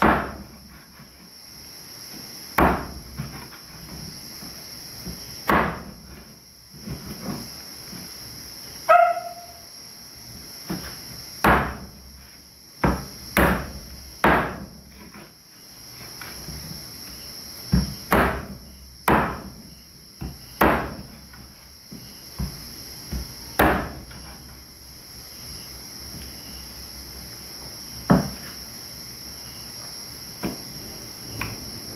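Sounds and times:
knife chopping on wooden board: 0.0 - 0.5, 2.6 - 3.5, 5.0 - 6.0, 10.7 - 11.9, 12.8 - 15.2, 17.7 - 19.6, 20.2 - 21.1, 22.4 - 24.2, 28.1 - 28.4
insects chirping: 0.0 - 31.9.

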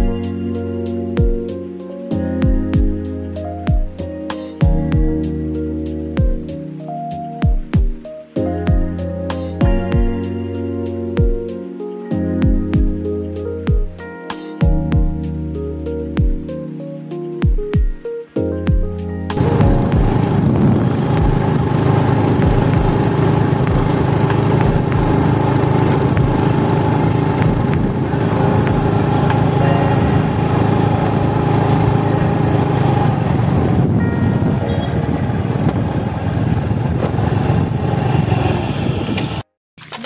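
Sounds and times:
road noise: 19.3 - 39.5
motorcycle engine running: 19.4 - 39.4.

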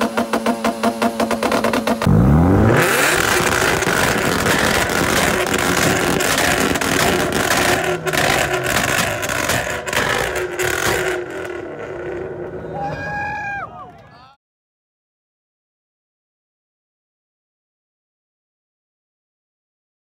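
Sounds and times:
car engine launch limiter pops: 0.0 - 12.2
car engine revving: 0.0 - 12.8
loud exhaust roar: 0.0 - 13.3.

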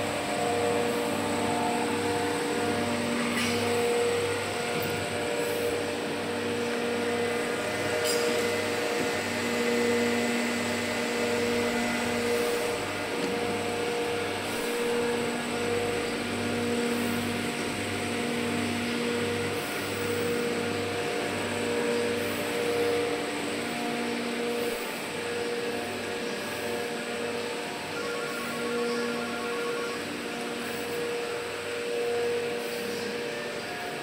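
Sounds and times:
industrial machinery humming: 0.0 - 34.0
steady machine tones: 26.7 - 32.6.

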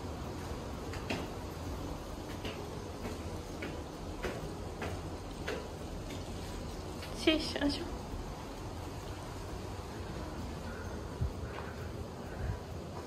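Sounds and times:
wind buffeting microphone: 7.9 - 13.0.

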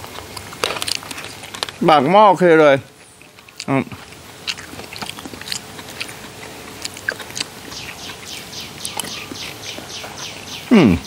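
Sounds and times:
chewing with wet mouth clicks: 0.0 - 10.7
bird chirping rapidly: 7.7 - 11.0.

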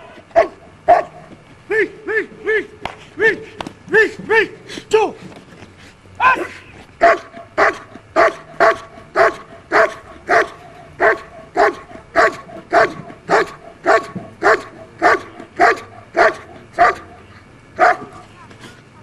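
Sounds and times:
dog barking sharply: 7.0 - 17.2, 17.8 - 18.2.

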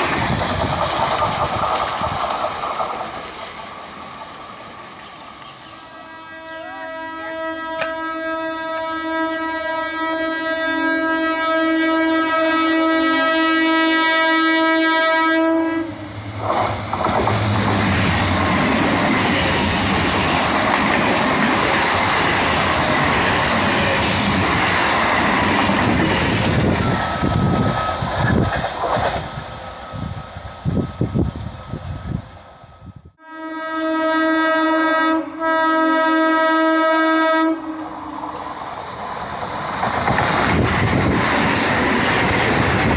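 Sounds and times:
wheels clacking over rail joints: 0.0 - 5.1, 16.3 - 29.3, 38.2 - 42.9
train wheels rushing on rails: 0.0 - 8.1, 15.4 - 32.9, 37.0 - 42.9
train horn blast: 5.8 - 16.4, 33.2 - 38.6.

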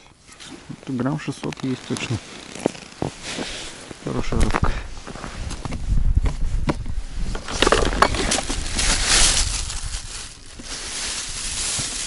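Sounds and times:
plastic bag crinkling: 7.4 - 12.0.

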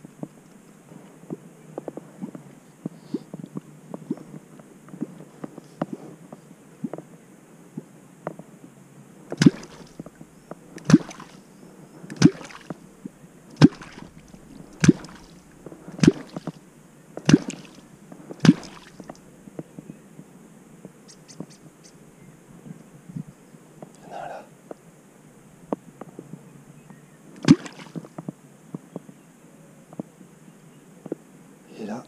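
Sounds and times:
catfish clonk plopping in water: 9.4 - 10.1, 12.2 - 12.8, 13.6 - 15.4, 16.0 - 16.6, 17.2 - 17.8, 18.4 - 19.2.

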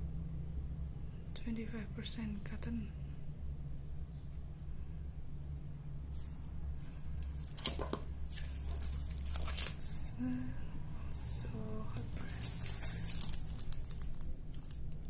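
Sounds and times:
low hum: 0.0 - 15.0
plastic wrapping crinkling: 6.2 - 10.2, 11.9 - 15.0.

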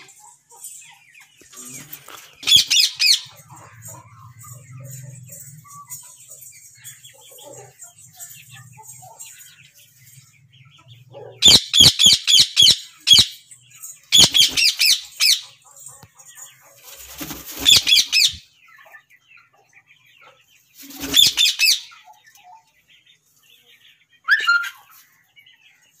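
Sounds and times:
parakeets screeching: 1.6 - 9.5, 11.1 - 13.4, 14.1 - 15.6, 16.8 - 18.4, 20.8 - 21.9.

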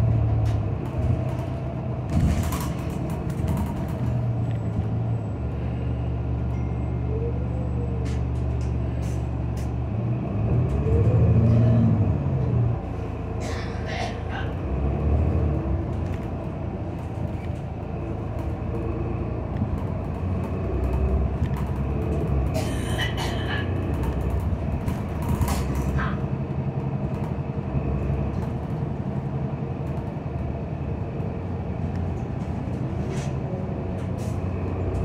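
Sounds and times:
bus engine and road rumble: 0.0 - 35.0
rattles and squeaks: 0.9 - 5.6.

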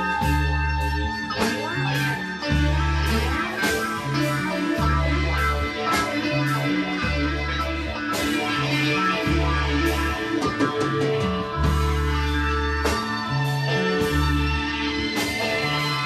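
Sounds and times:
drums and cymbal crashes: 0.0 - 16.0
electric guitars: 0.0 - 16.0
low bass notes: 0.0 - 16.0.

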